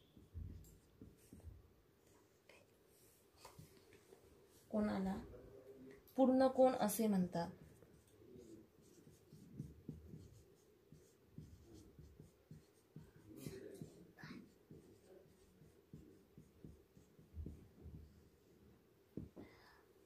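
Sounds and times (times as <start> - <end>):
marker pen writing on a board: 7.6 - 18.2.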